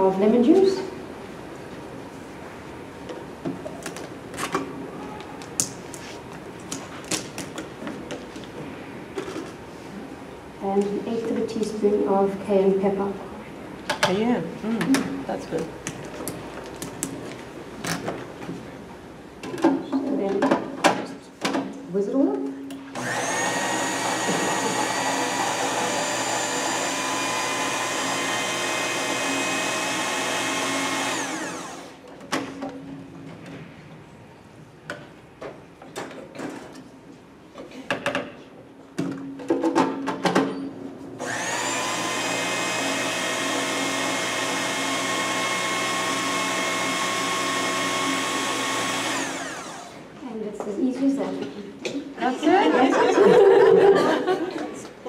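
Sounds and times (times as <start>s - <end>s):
food processor motor whining: 23.0s - 32.0s, 41.2s - 50.0s.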